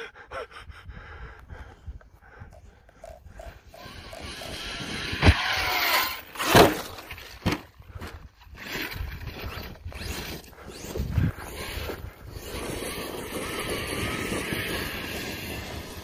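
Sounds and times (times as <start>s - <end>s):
electric rc truck motor whine: 2.5s - 16.0s
rc truck crashing and tumbling: 3.7s - 16.0s.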